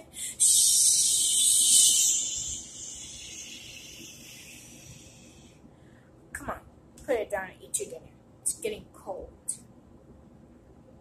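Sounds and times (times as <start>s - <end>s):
loud high hiss: 0.2s - 5.5s.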